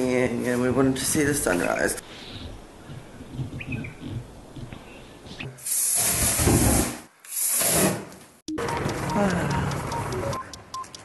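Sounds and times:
aerosol spray can hissing: 5.6 - 8.0.

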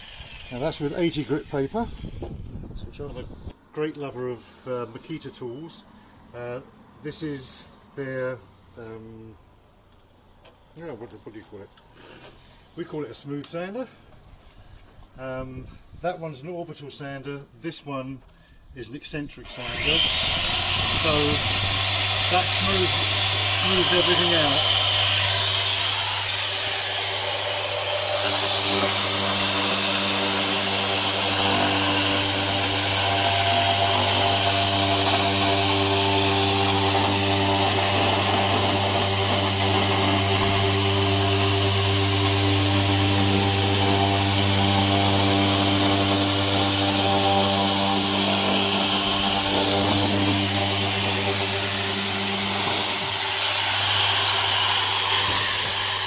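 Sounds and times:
electric sander motor hum: 0.0 - 0.7, 19.5 - 56.0.

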